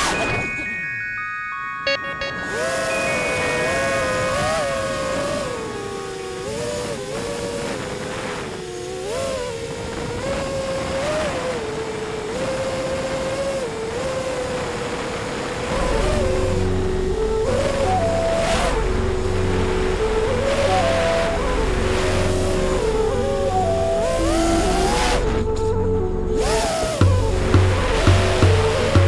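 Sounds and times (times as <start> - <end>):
quadcopter motors whining: 1.9 - 29.0
wind noise: 1.9 - 29.0.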